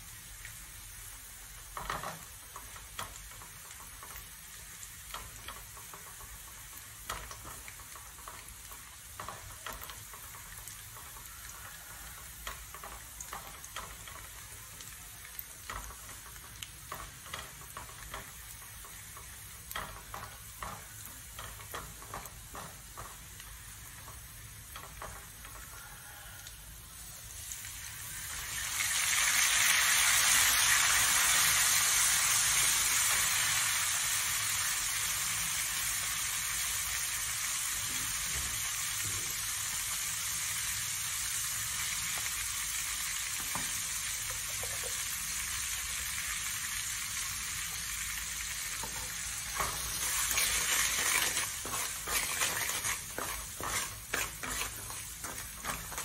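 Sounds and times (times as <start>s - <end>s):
garlic sizzling in oil: 0.0s - 56.0s
spatula scraping and tapping pan: 1.6s - 26.5s, 43.4s - 45.2s, 48.6s - 56.0s.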